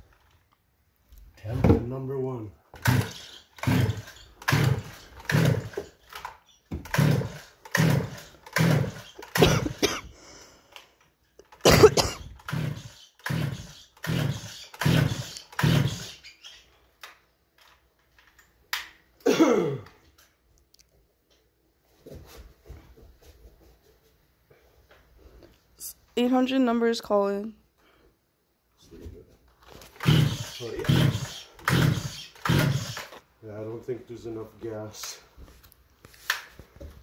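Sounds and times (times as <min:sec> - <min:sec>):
chainsaw starter cord pulls: 0:02.8 - 0:09.4, 0:12.3 - 0:16.2, 0:29.8 - 0:33.2.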